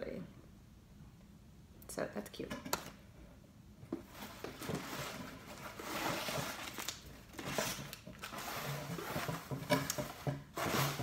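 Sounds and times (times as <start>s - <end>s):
packaging rustling and crinkling: 4.0s - 11.0s.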